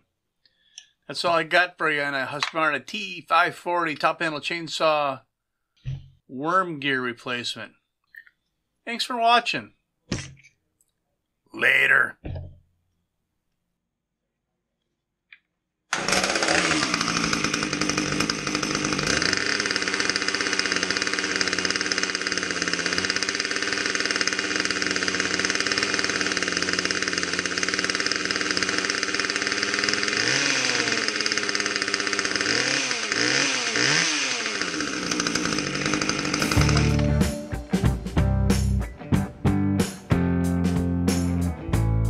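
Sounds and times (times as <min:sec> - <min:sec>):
chainsaw engine running and revving: 0:15.9 - 0:38.8.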